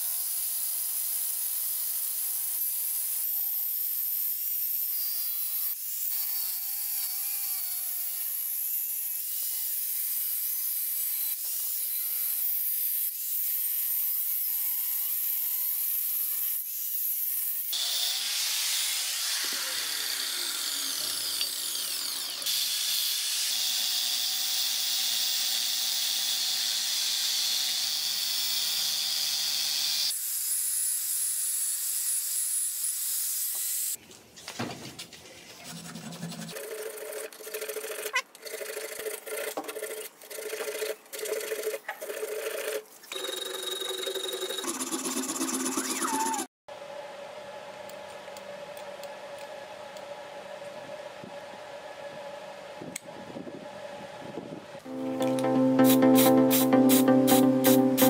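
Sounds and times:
angle grinder grinding metal: 1.2 - 30.2.

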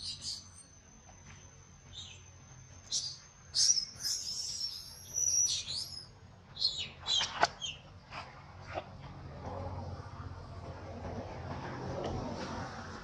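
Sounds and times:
baby monkey squeaky calls: 2.9 - 7.2.

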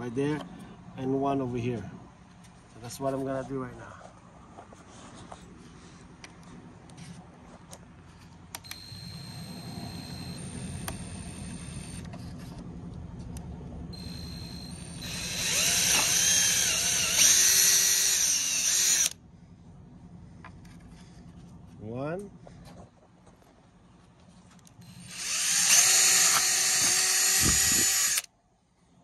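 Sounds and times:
cordless drill boring plastic: 8.6 - 12.1, 14.0 - 19.2, 24.8 - 28.3.

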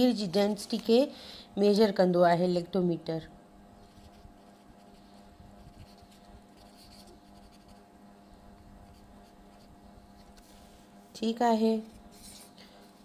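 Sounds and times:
low steady hum: 0.0 - 13.0
pen scratching on paper: 3.8 - 7.9, 8.6 - 10.4.

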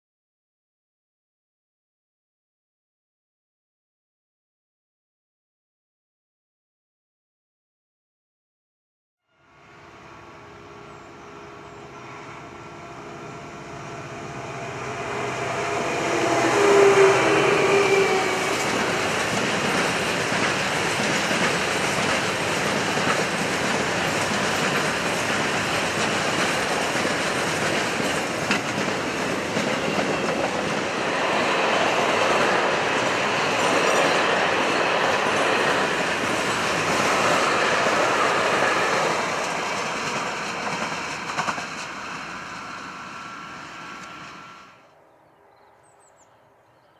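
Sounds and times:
freight train passing: 9.3 - 46.6
steady tones: 9.6 - 44.8.

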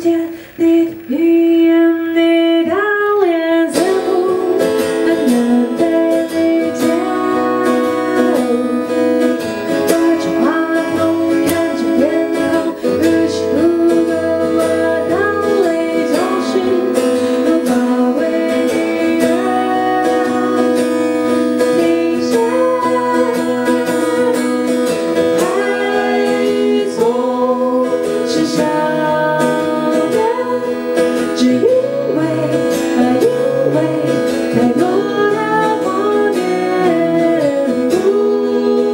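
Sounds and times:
acoustic guitar: 0.0 - 38.9
woman singing: 0.0 - 38.9.

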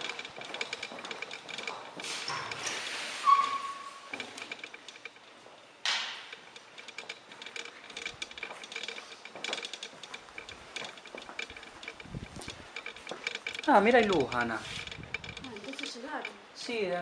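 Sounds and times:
faint clicks and ticks: 0.0 - 2.6, 4.1 - 16.4
door squeak: 2.2 - 4.2.

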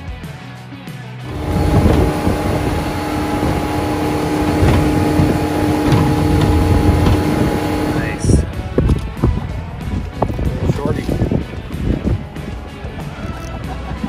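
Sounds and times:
water spray off hull: 1.3 - 8.4
outboard motor whining: 1.3 - 8.5.

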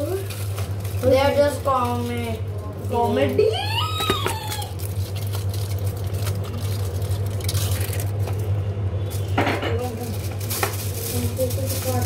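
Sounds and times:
low electric hum: 0.0 - 12.0.

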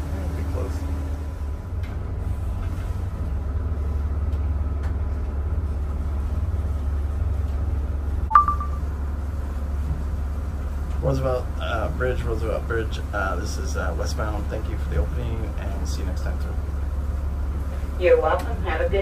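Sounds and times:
diesel engines rumbling: 0.0 - 19.0
short sharp high beep: 8.3 - 8.8.

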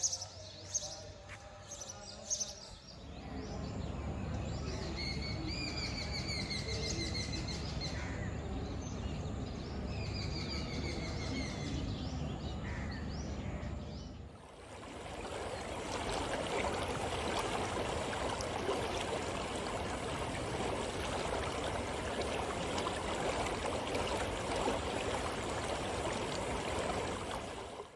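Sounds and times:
birds calling: 12.5 - 27.9.

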